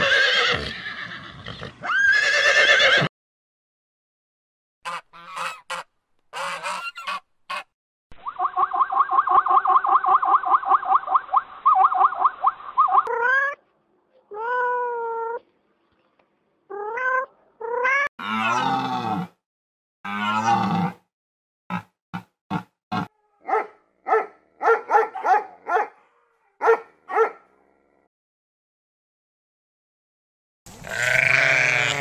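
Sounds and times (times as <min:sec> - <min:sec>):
swans calling: 0:04.9 - 0:13.5.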